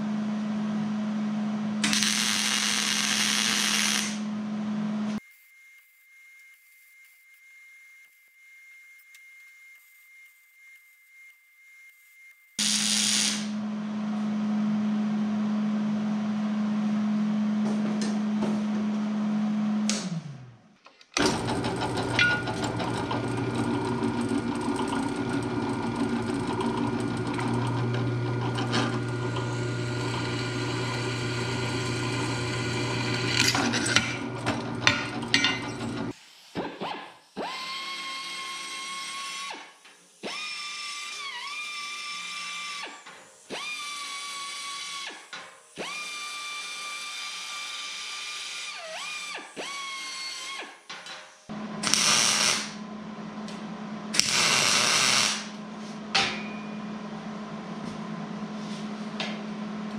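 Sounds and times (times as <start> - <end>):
motor humming: 21.2 - 36.1
drill press drilling steel: 21.2 - 36.2, 51.8 - 52.8, 54.2 - 55.6
belt file grinding steel: 28.4 - 36.2.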